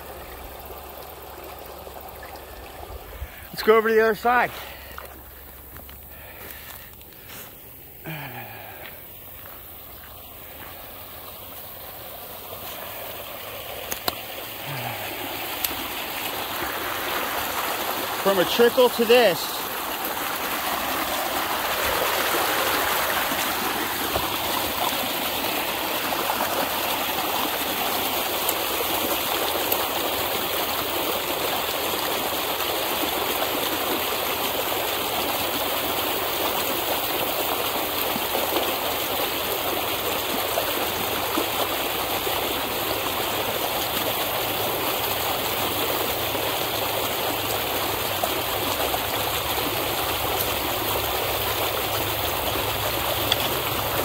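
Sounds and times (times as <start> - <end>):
water gushing from drain pipe: 0.0 - 7.3, 8.1 - 54.0.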